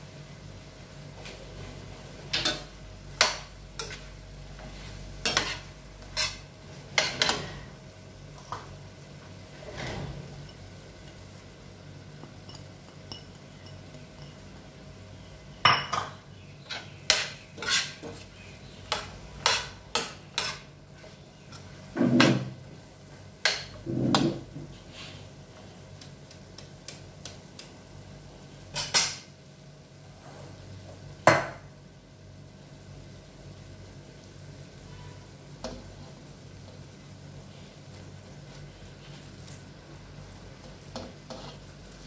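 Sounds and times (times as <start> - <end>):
metal spoon clinking in frying pan: 12.4 - 14.5.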